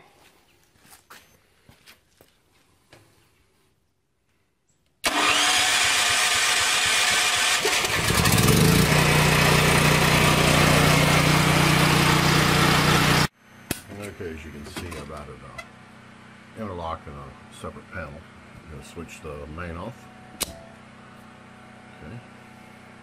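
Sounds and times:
portable generator engine running: 5.0s - 23.0s.

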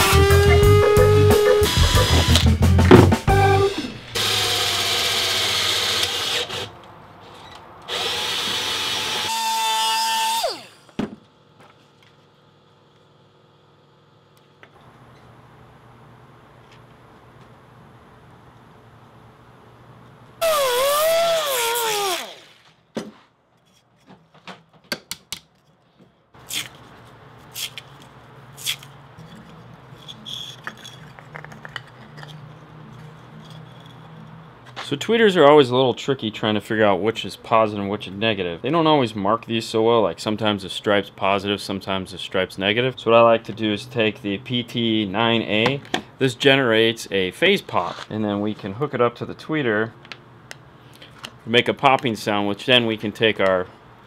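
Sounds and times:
power drill running: 0.0s - 2.4s, 3.3s - 6.7s, 7.9s - 10.9s, 20.4s - 22.7s.

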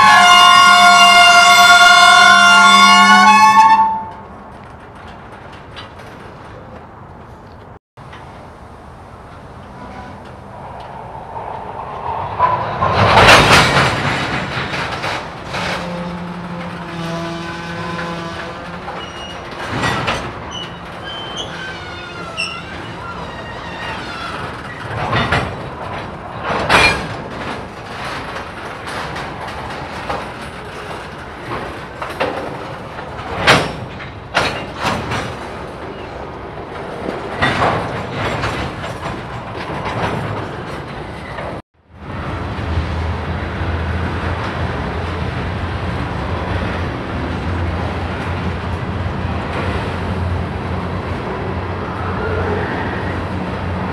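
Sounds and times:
train wheels rumbling on rail: 0.0s - 53.9s
wheel squeal: 15.6s - 25.0s.

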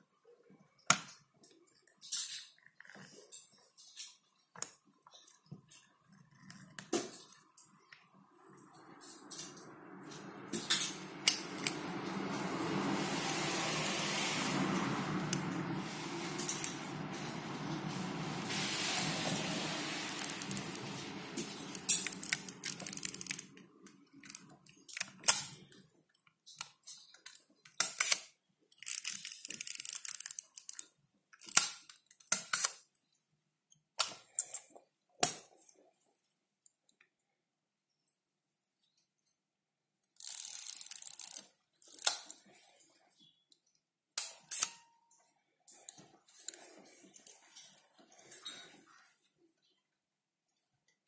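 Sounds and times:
steady low noise: 8.0s - 23.8s.

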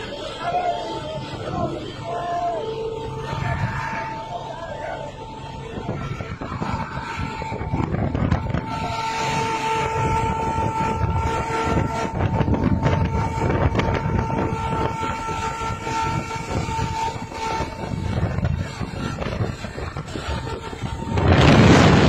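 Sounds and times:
truck engines rumbling: 0.0s - 22.0s
truck horn: 0.0s - 22.0s.

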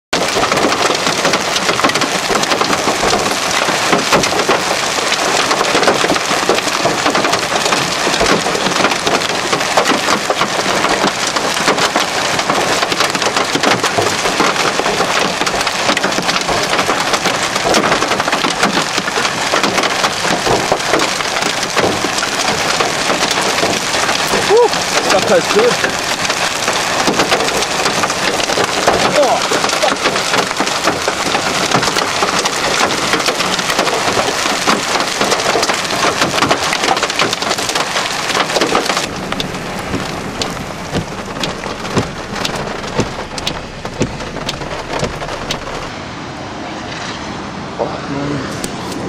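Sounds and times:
hailstones striking hard surfaces: 0.2s - 45.9s
heavy rain hiss: 0.6s - 45.9s.

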